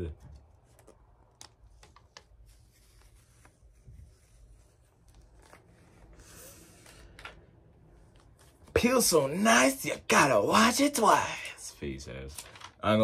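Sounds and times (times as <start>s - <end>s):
paper wrap peeling: 0.4s - 6.2s.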